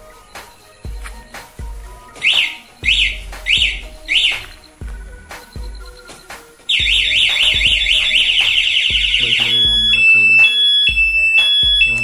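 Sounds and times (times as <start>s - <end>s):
motorcycle alarm siren: 2.1s - 4.8s, 5.4s - 12.0s.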